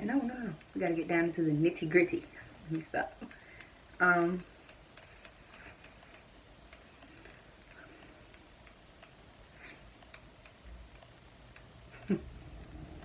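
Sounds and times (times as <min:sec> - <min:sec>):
faint irregular clicks and taps: 0:00.2 - 0:13.0.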